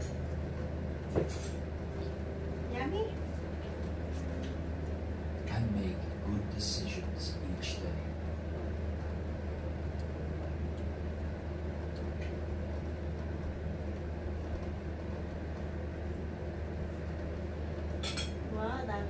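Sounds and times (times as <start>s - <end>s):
air conditioner humming: 0.0s - 19.0s.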